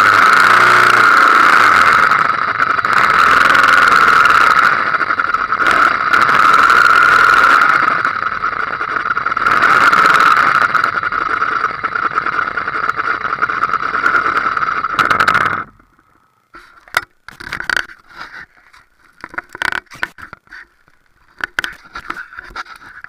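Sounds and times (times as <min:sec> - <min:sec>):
motorcycle engine running: 0:00.0 - 0:23.0
short scrapes and knocks: 0:16.6 - 0:23.0.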